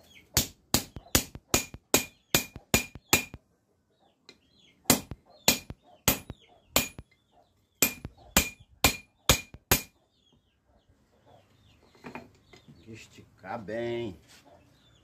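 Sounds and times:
hammer ringing on metal: 0.4 - 3.4, 4.9 - 7.0, 7.8 - 9.9.

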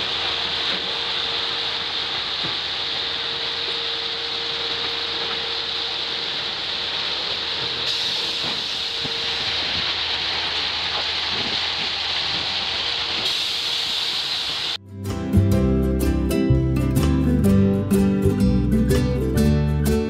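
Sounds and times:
track machine hissing: 0.0 - 14.8.

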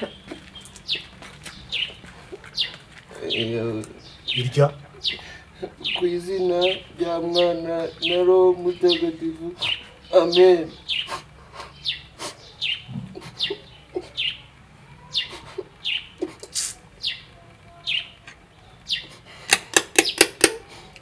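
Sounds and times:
sharp clicks: 15.4 - 21.0.

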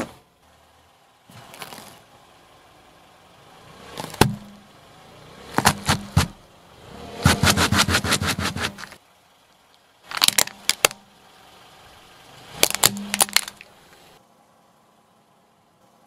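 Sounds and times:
tyre crushing vegetable: 5.5 - 6.4, 7.2 - 9.0
plastic toy cracking under tyre: 10.1 - 11.0, 12.6 - 13.7.

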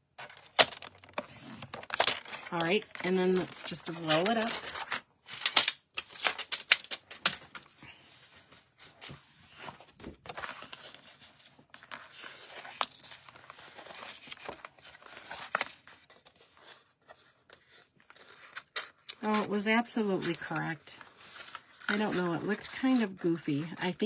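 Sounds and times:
paper rustling and sliding: 3.8 - 18.9, 20.2 - 23.0.

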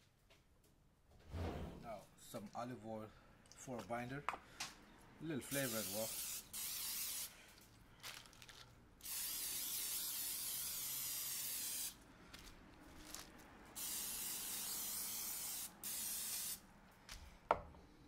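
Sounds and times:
cooking spray hissing: 5.5 - 7.4, 9.0 - 12.0, 13.8 - 16.6.

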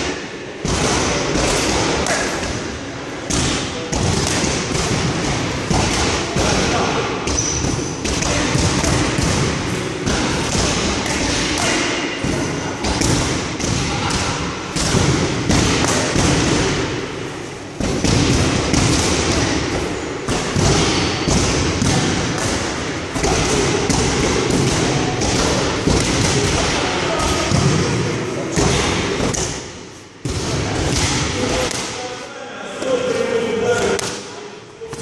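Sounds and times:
boxing gloves hitting mitts: 3.3 - 17.0, 17.8 - 28.0.

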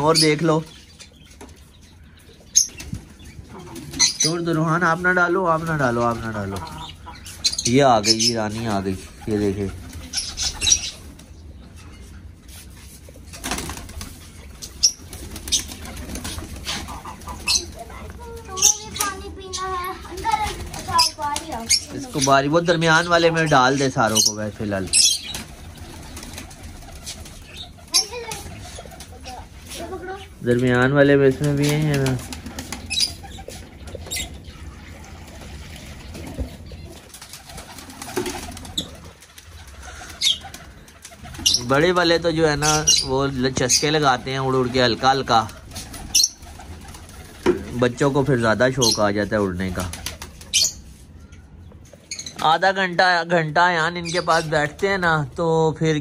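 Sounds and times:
high bird calls: 0.0 - 52.8
pigeons flapping wings: 13.2 - 22.2, 25.1 - 30.2, 31.3 - 34.2, 35.2 - 42.3, 44.2 - 48.0, 49.6 - 50.7.

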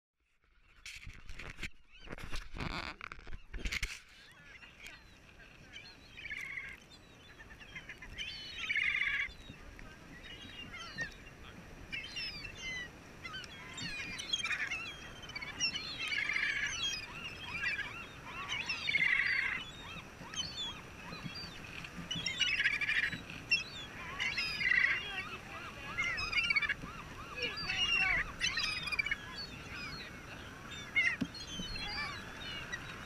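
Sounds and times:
gulls squawking: 1.8 - 33.0
gulls short cries: 22.1 - 33.0.

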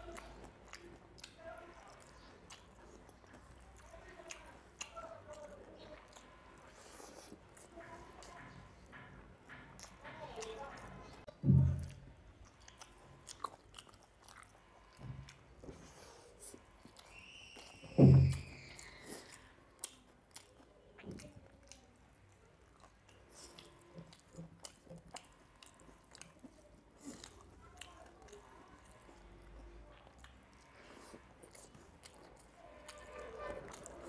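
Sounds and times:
chewing: 0.0 - 34.0
loud thump: 11.4 - 12.0, 18.0 - 18.4.

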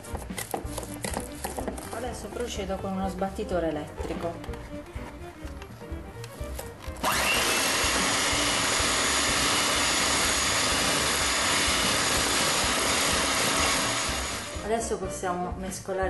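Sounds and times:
electric hand mixer running: 7.0 - 14.6.

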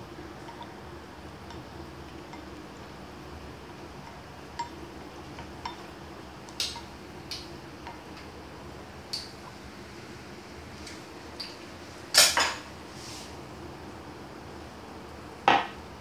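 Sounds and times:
steady low hum: 0.0 - 16.0
utensils clinking on ceramic bowl: 0.4 - 0.8.

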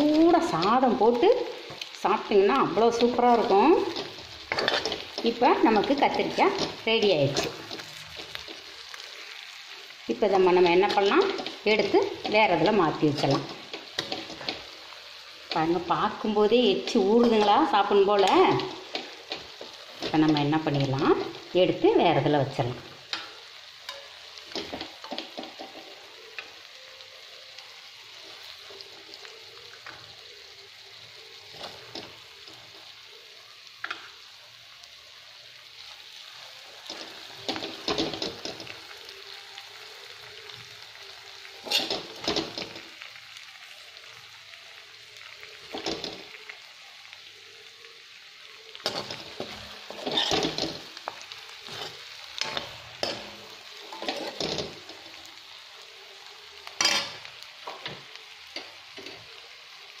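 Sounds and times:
vegetables sizzling in oil: 0.0 - 60.0
steel spoon scraping pan: 3.4 - 8.6, 41.6 - 42.2, 48.9 - 50.6.

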